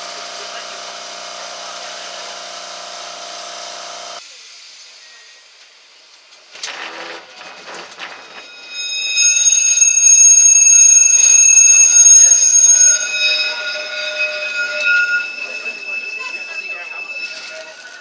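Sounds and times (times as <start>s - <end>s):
steel wheels squealing on rails: 4.8s - 5.7s, 6.6s - 18.0s.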